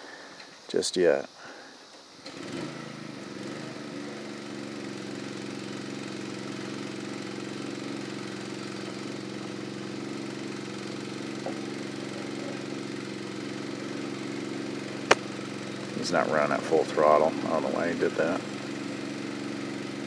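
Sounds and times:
water pump engine running: 4.1 - 20.0.

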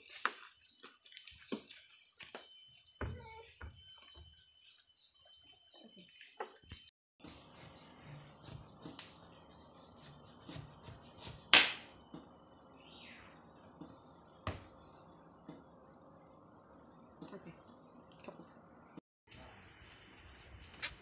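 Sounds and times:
crickets buzzing: 7.2 - 21.0
knife cutting through gourd: 7.5 - 9.3, 10.0 - 11.8.

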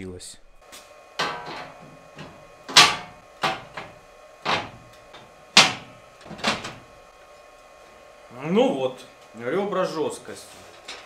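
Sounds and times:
metal parts clanking on steel sheet: 1.2 - 6.8.

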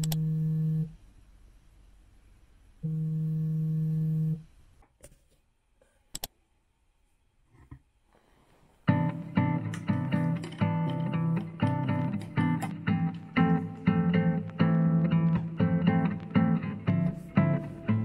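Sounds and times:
phone vibrating on table: 2.8 - 4.4.

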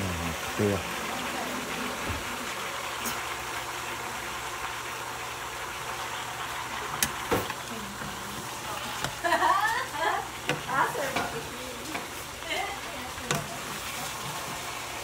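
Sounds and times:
gourd sizzling in a frying pan: 0.0 - 15.0
utensils knocking against pan: 10.4 - 12.2.

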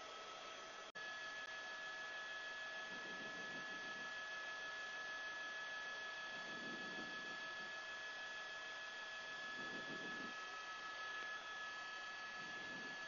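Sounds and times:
electronic hiss and hum: 8.9 - 13.0.

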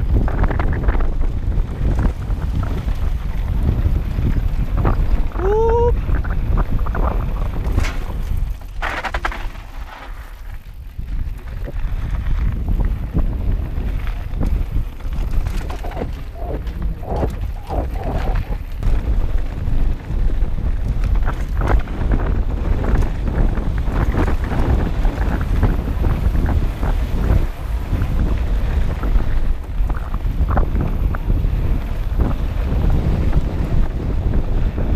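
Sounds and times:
wind buffeting microphone: 0.0 - 9.3, 10.5 - 34.9
bike knocking and rattling: 0.0 - 34.9
tyres rolling over gravel: 6.4 - 33.7.

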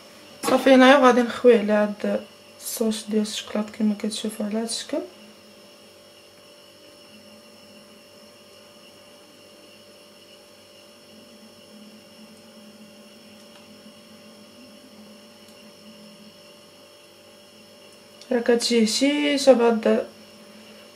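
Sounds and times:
electrical hum: 0.0 - 20.9
thin high whines: 4.1 - 20.9.

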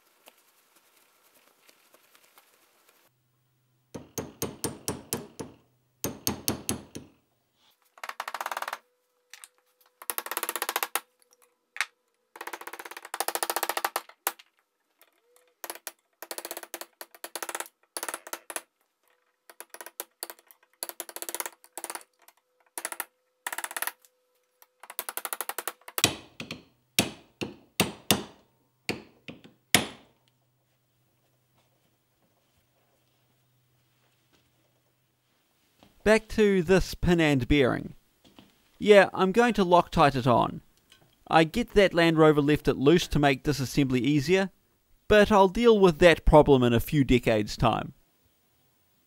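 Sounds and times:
hammer tapping on a drift: 3.9 - 7.2.

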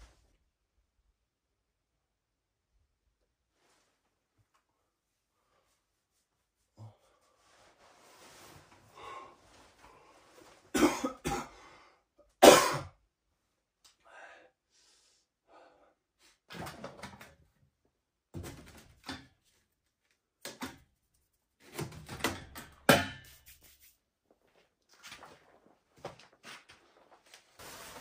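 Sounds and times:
man coughing: 10.7 - 11.6, 12.4 - 12.9
man clearing his throat: 10.8 - 11.6, 12.4 - 12.9.

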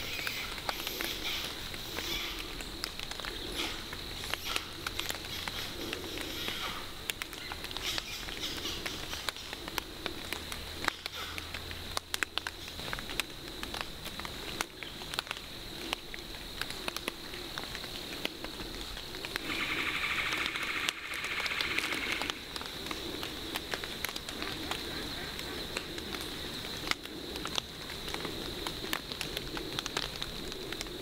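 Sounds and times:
crackling in leaf litter: 0.0 - 31.0.

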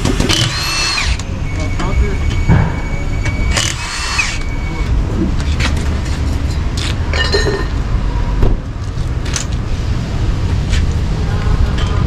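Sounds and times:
steady low rumble: 1.0 - 7.1.

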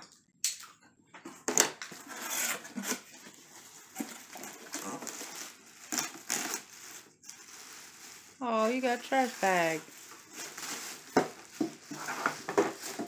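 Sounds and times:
cardboard box scraping and rustling: 9.1 - 13.0.

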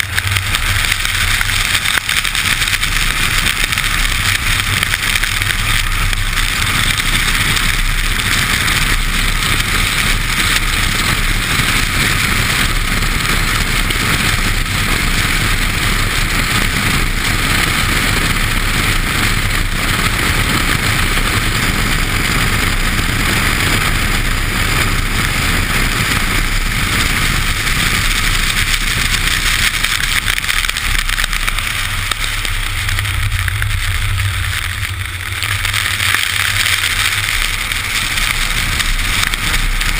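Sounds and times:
low engine rumble: 0.0 - 39.9
steady low hum: 0.0 - 39.9
wind rushing: 0.0 - 39.9.

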